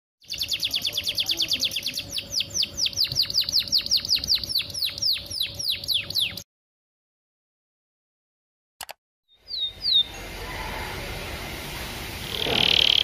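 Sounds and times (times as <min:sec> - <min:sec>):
canary singing: 0:00.2 - 0:06.4, 0:09.3 - 0:10.9.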